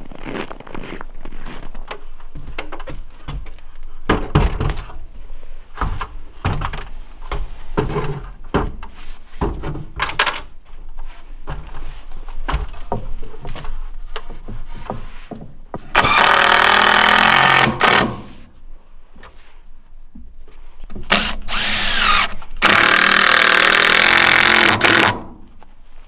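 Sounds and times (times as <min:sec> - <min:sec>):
wooden thunks and knocks: 0:02.3 - 0:05.0, 0:05.8 - 0:10.5, 0:12.4 - 0:18.3.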